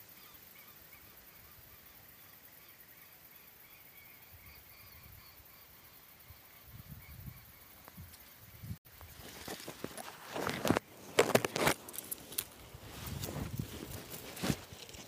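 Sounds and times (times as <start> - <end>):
birds chirping: 0.0 - 11.2
low rumble of wind: 11.8 - 15.0.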